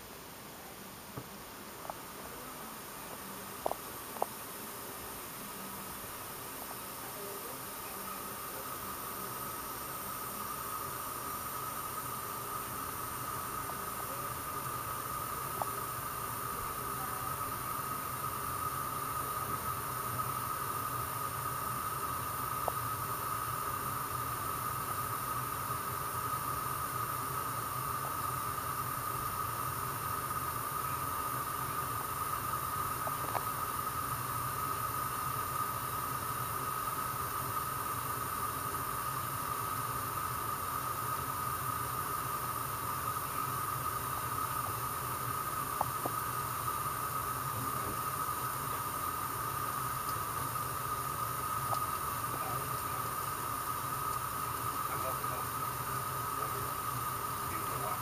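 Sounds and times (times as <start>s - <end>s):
water boiling: 0.0s - 58.0s
faint ticks: 1.1s - 2.1s, 3.0s - 4.6s, 13.0s - 14.2s, 15.4s - 16.0s, 21.0s - 38.1s, 41.6s - 52.6s, 53.7s - 55.0s.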